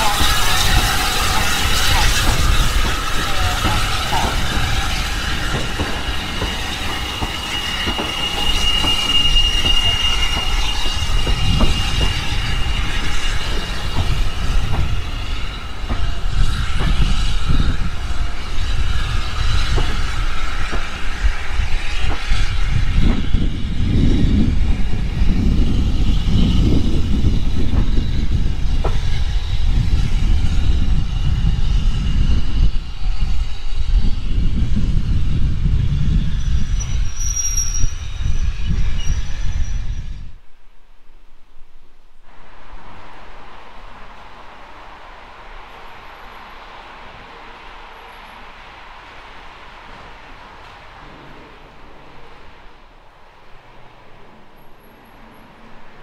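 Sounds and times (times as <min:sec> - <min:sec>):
wheels clicking over rail joints: 0:00.0 - 0:29.1, 0:45.1 - 0:56.0
high wheel squeal: 0:00.0 - 0:40.4
railway carriages rumbling: 0:00.0 - 0:56.0.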